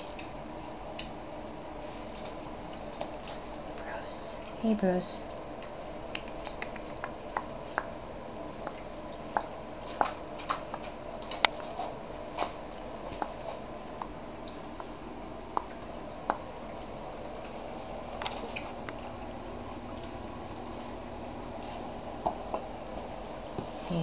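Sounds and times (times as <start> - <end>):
puppy chewing a shoe: 5.5 - 7.6, 8.5 - 23.8.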